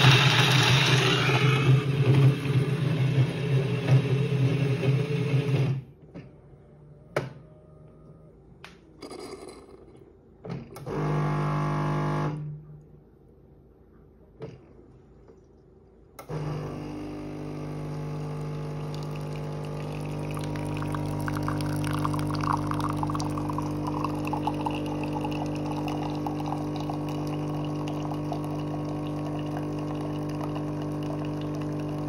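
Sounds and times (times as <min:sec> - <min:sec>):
coffee machine humming: 0:00.0 - 0:05.8, 0:10.7 - 0:12.5, 0:16.2 - 0:32.0
coffee splashing into a glass: 0:18.7 - 0:32.0.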